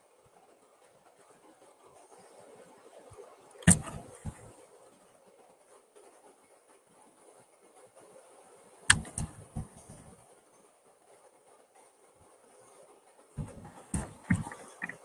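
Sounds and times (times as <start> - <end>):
faint steady hiss: 0.0 - 15.0
sharp knocks: 3.7 - 4.5, 8.9 - 10.1, 13.4 - 15.0.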